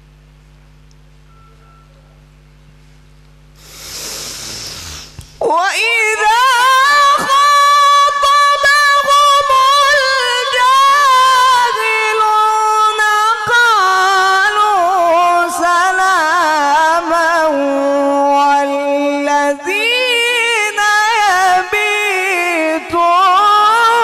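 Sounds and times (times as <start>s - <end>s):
person reciting melodically: 5.4s - 24.0s.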